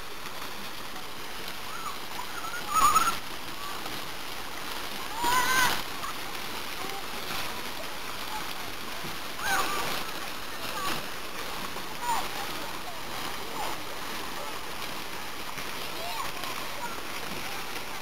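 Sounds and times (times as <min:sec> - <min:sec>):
water splashing into pool: 0:00.0 - 0:18.0
children shrieking: 0:01.7 - 0:03.8, 0:05.0 - 0:06.2, 0:09.4 - 0:11.0.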